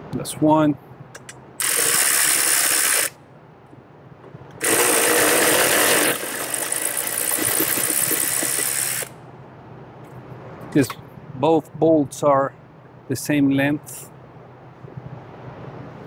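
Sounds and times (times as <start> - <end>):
power ratchet spinning bolt: 1.2 - 3.2, 4.6 - 9.2.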